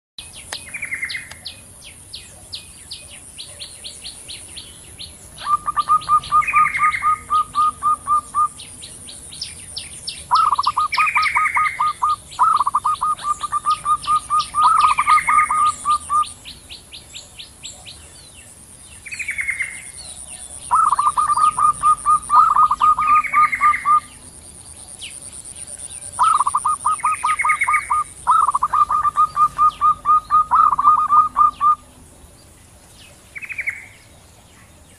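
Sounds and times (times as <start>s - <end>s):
fast high bird chirping: 5.0s - 8.8s, 9.4s - 16.4s, 20.7s - 24.2s, 26.1s - 31.8s
doves cooing: 5.3s - 8.6s, 10.2s - 16.4s, 20.7s - 24.2s, 26.1s - 31.9s
high falling bird notes: 5.4s - 8.6s, 10.3s - 16.4s, 20.7s - 24.2s, 26.2s - 31.9s.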